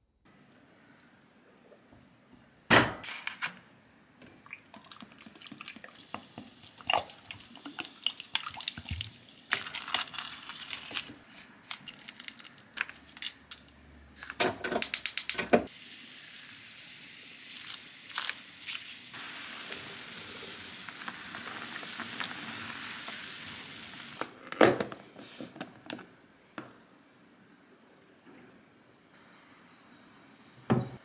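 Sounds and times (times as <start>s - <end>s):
water pouring and splashing: 4.4s - 11.0s
steady hiss: 14.8s - 24.3s.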